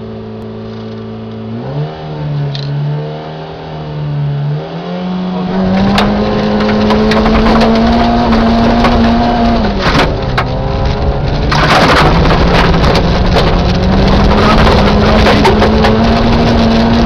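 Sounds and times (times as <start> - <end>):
rally car engine revving: 0.0 - 17.0
gravel clattering on underbody: 5.6 - 17.0.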